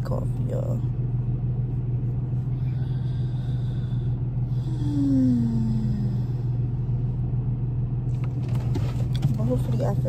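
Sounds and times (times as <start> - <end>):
car engine idling: 0.0 - 10.0
woman moaning: 4.5 - 6.5.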